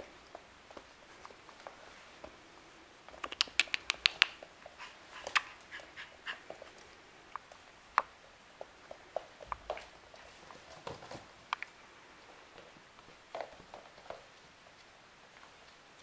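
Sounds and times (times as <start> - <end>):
clicks: 3.1 - 4.4.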